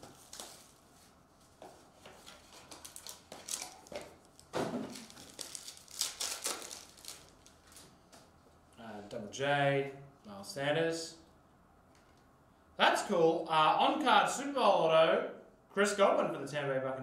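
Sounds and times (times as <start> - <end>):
cellophane crinkling: 2.0 - 8.0
foil pack tearing: 4.9 - 7.6.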